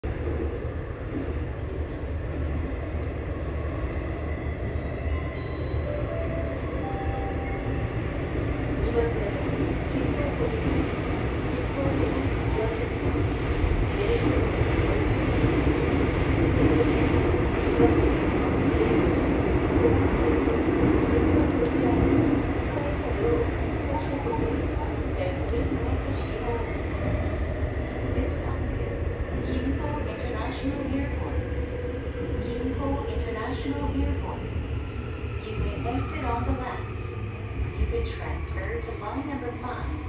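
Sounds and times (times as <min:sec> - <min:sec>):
train wheels rumbling on track: 0:08.1 - 0:40.0.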